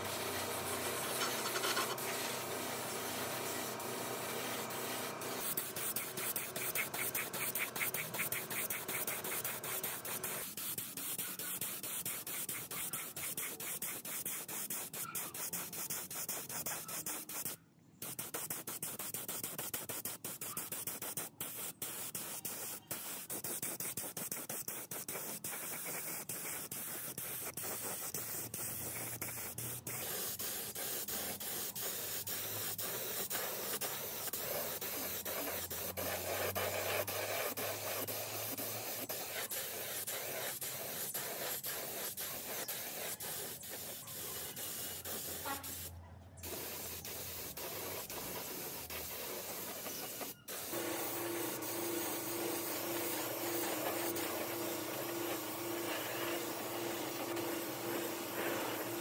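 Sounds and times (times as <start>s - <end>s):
hand work on metal: 0.4s - 17.5s, 46.4s - 59.0s.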